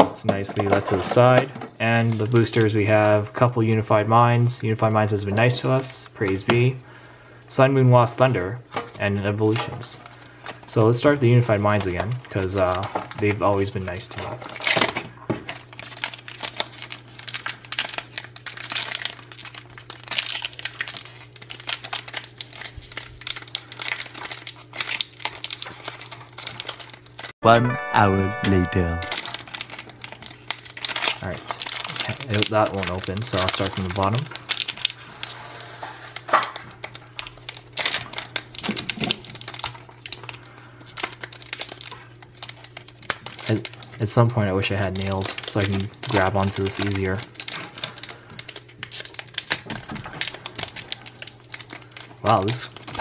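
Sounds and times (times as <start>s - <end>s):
foil wrapper crinkling: 9.4s - 27.3s, 29.0s - 53.0s.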